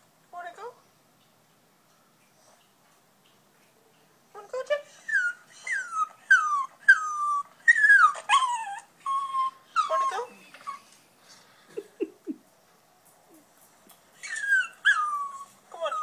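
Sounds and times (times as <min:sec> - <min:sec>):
dog whining: 0:04.9 - 0:11.0, 0:14.2 - 0:16.0.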